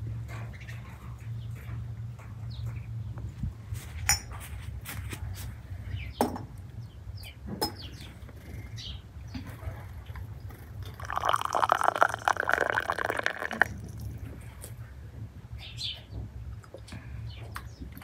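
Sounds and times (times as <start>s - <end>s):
tea things clinking: 10.9s - 13.7s.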